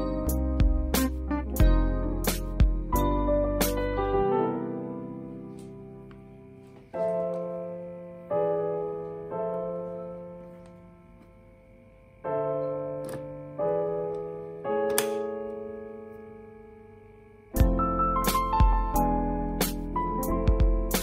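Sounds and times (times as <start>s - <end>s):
soft piano chords: 0.0s - 21.0s.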